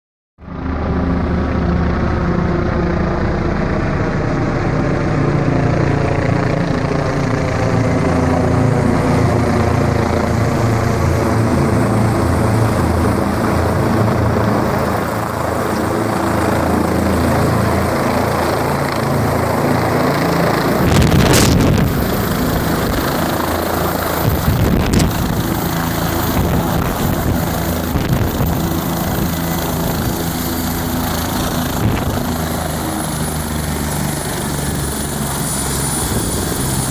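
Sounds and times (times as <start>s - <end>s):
helicopter engine running: 0.4s - 36.9s
helicopter rotor beating: 0.5s - 36.9s
loud burst of noise: 20.8s - 23.2s.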